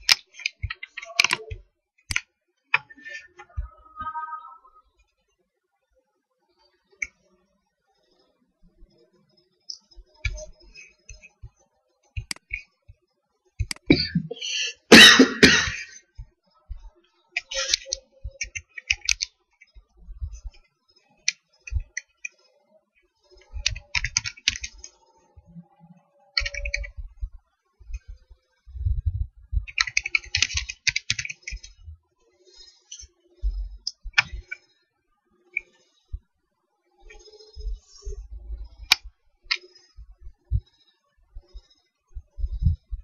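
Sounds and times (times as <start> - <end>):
keyboard keys clicking: 0.0 - 2.2, 23.5 - 25.0, 26.4 - 27.0, 29.6 - 31.8.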